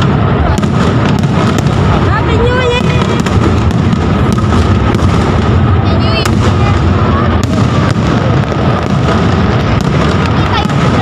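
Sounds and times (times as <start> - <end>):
rumble of firework shells bursting: 0.0 - 11.0
sharp firework bangs: 0.0 - 11.0.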